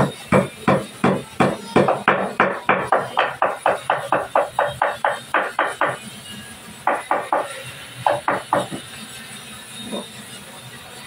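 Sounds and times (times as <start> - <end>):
hammer blows on wood: 0.0 - 6.0.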